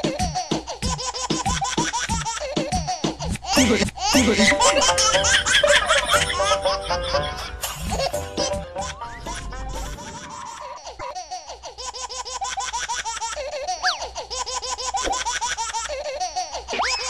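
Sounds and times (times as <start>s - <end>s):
dance music with steady beat: 0.0s - 5.0s
high-pitched laughter: 0.0s - 17.0s.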